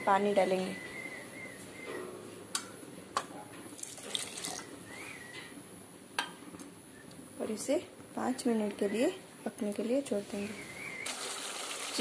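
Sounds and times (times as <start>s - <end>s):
water pouring into a pan: 3.8s - 4.7s, 11.1s - 12.0s.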